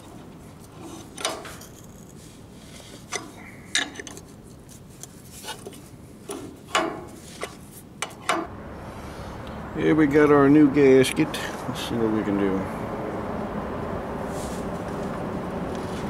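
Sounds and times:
wrench clinking on metal nut: 3.1s - 4.2s.

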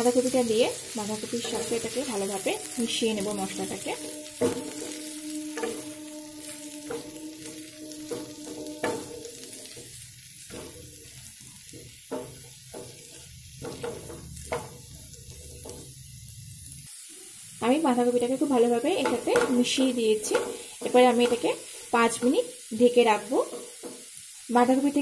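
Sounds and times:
food sizzling in oil: 0.0s - 25.0s
spatula scraping pan: 0.1s - 16.0s.

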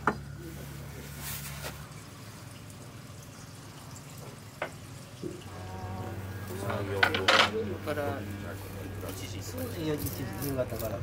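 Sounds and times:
light clicks of kiln blocks: 4.2s - 5.4s.

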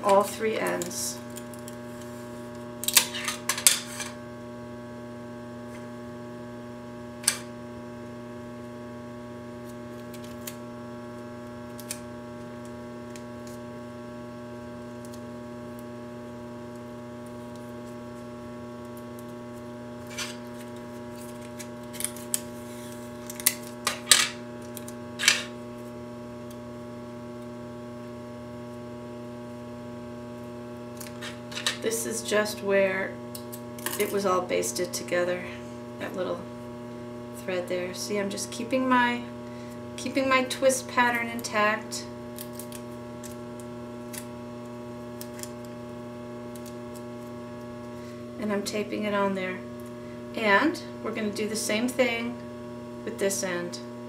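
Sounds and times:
electrical hum: 0.0s - 54.0s
adhesive tape crackling off roll: 42.4s - 44.3s, 45.2s - 45.8s.

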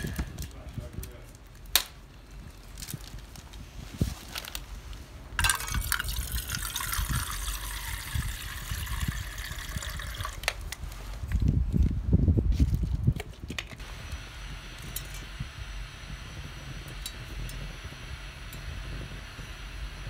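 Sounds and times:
water pouring into a metal pan: 5.4s - 10.5s.

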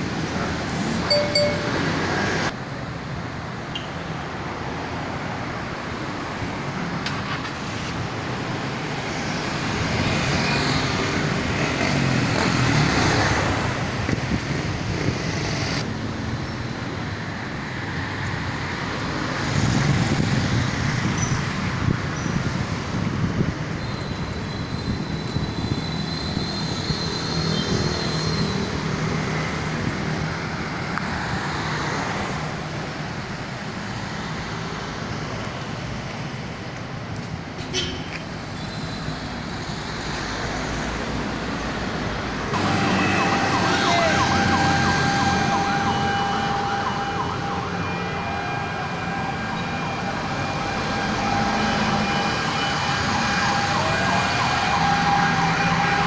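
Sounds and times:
passing cars and motorbikes: 4.4s - 56.0s
warbling siren: 42.6s - 56.0s.

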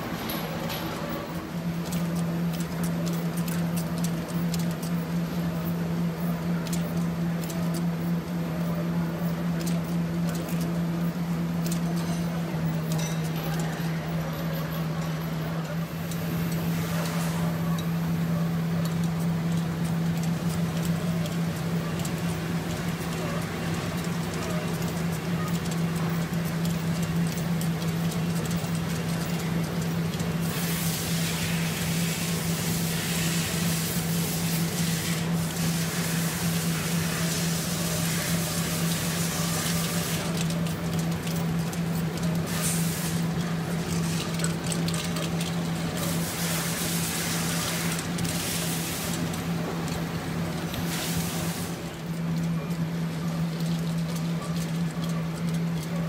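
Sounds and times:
capping machine humming: 0.0s - 56.0s
machine hissing: 15.8s - 52.4s.

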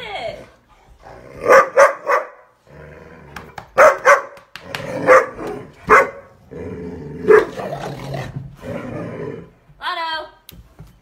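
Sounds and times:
large dogs barking: 1.3s - 2.6s, 3.7s - 8.3s.

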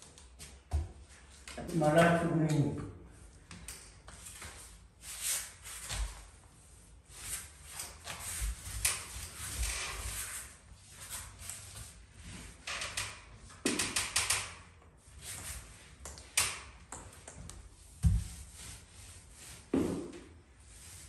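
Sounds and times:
paint roller rolling on wall: 4.1s - 14.2s, 17.1s - 21.0s.

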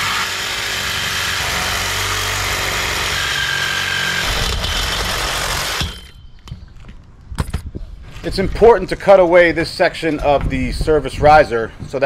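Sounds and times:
power tool cutting: 0.0s - 6.1s.

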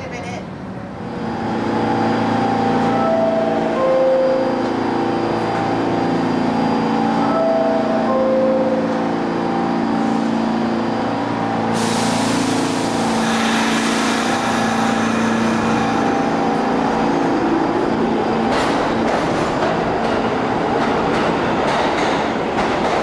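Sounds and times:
train wheels rolling on track: 0.8s - 23.0s
train motor hum: 0.9s - 23.0s
hiss burst: 11.7s - 15.0s.

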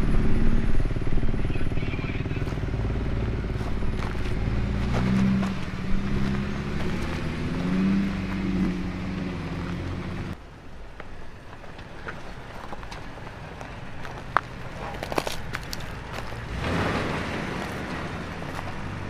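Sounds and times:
engine revving unevenly: 0.0s - 10.4s, 13.8s - 19.0s
tyres crunching on loose rock: 12.0s - 18.8s.

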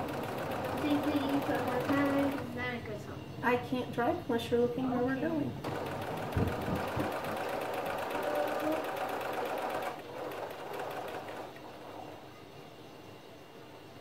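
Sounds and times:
sewing machine stitching: 0.0s - 2.4s, 5.6s - 11.6s.

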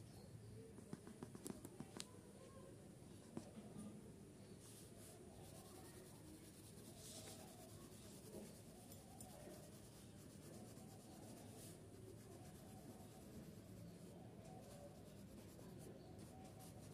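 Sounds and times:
pencil scratching on paper: 5.0s - 16.9s.

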